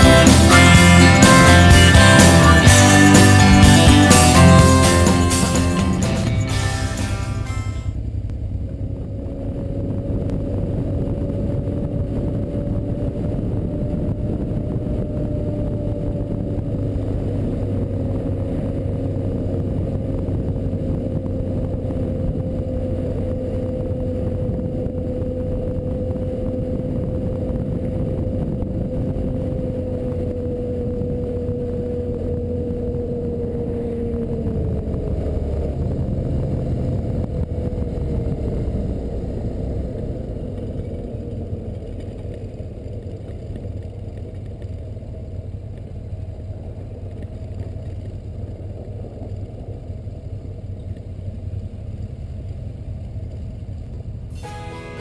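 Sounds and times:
heavy wind: 0.0s - 42.3s
motorcycle engine cruising: 0.0s - 54.7s
road rumble: 0.0s - 55.0s.

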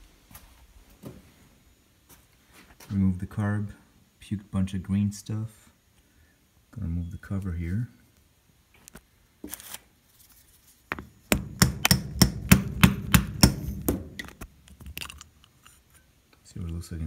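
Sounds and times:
sharp knocks on metal: 10.9s - 14.4s.

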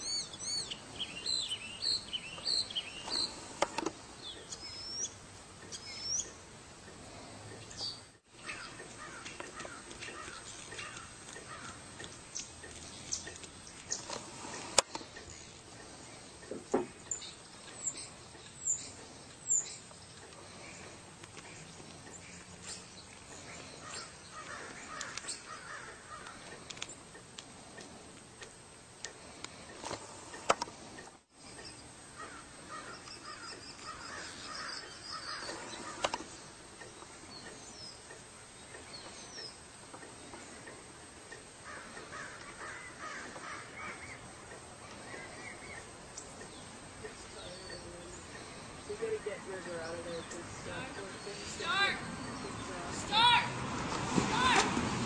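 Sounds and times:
high bird chirps: 0.0s - 3.5s, 4.2s - 6.4s
birds harsh calls: 0.0s - 53.6s.

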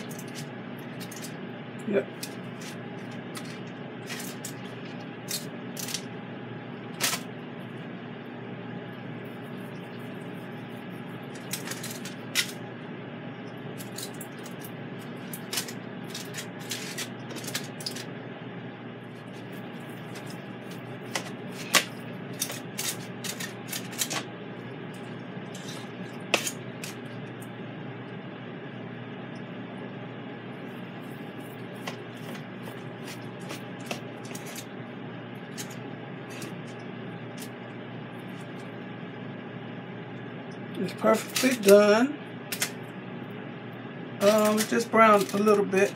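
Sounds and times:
steady background hum: 0.0s - 45.9s
fork scraping foil and plate: 11.3s - 12.5s, 15.2s - 18.0s, 19.2s - 24.2s, 25.5s - 27.0s, 31.6s - 34.7s, 44.2s - 45.9s.

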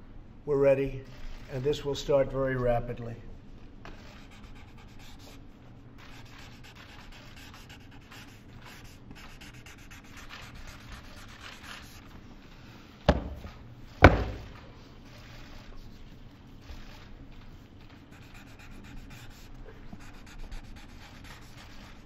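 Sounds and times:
paper rubbing: 3.9s - 5.4s, 6.0s - 12.8s, 13.4s - 22.0s
pen scratching on paper: 3.9s - 5.4s, 6.0s - 12.1s, 18.0s - 22.0s
sharp knocks: 13.1s - 14.6s.

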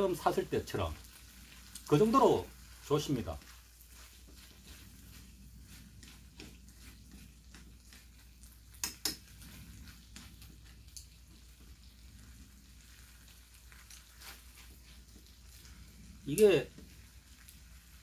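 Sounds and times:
food frying in a pan: 0.0s - 18.0s
chopsticks clicking on pan: 7.4s - 9.3s.

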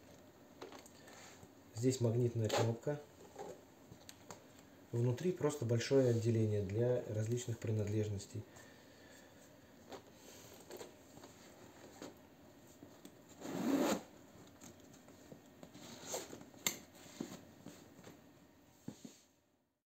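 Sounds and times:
rubbing and handling leather: 9.2s - 19.3s
metal zipper zipping: 13.3s - 14.1s.

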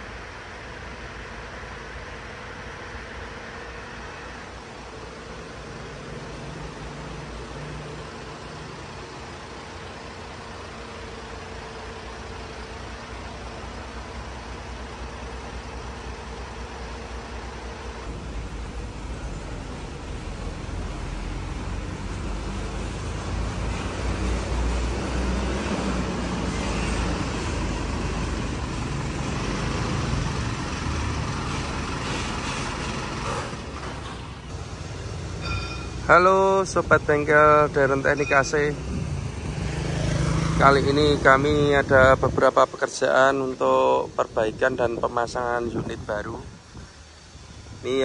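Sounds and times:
diesel truck engine idling: 0.0s - 48.0s.

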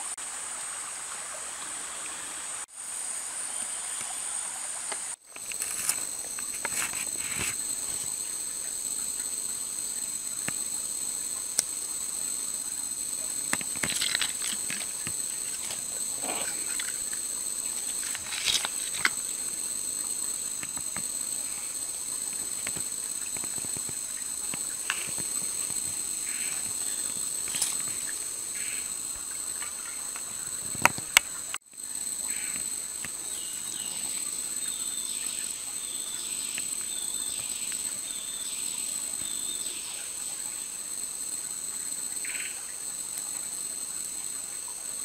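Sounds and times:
insects buzzing: 0.0s - 45.0s.

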